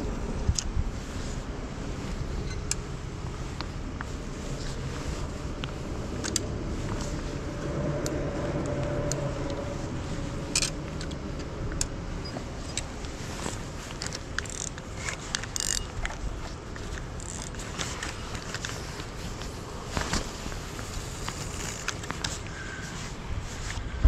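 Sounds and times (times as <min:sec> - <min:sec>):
steady low rumble: 0:00.0 - 0:24.0
fishing tackle clicks and rattles: 0:10.5 - 0:12.0, 0:13.9 - 0:19.1.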